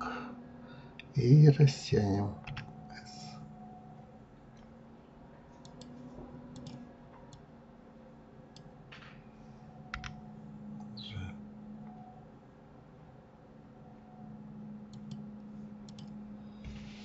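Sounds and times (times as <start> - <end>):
faint low hum: 0.0 - 17.0
keyboard keys clicking: 2.4 - 2.8, 5.6 - 7.4, 9.9 - 10.2, 14.9 - 15.2, 15.8 - 16.8
computer mouse clicks: 5.6 - 7.4, 9.9 - 10.2, 14.9 - 15.2, 15.8 - 16.9.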